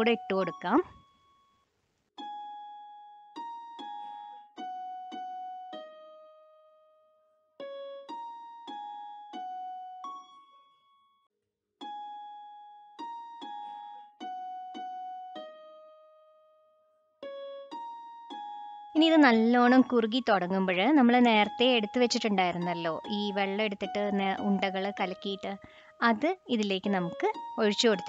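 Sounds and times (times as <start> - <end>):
slow keyboard melody: 2.2 - 10.4, 11.8 - 19.2.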